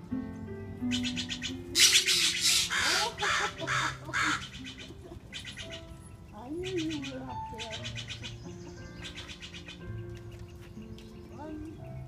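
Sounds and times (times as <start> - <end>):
background music: 0.0 - 12.0
crows cawing: 0.9 - 6.0.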